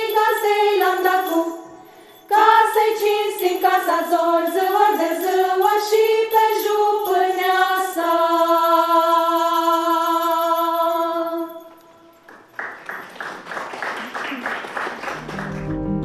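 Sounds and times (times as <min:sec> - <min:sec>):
women's choir singing a cappella: 0:00.0 - 0:12.0.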